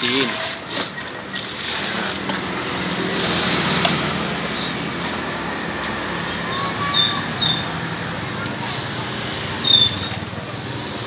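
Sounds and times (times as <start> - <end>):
water pouring and splashing: 0.0 - 4.4.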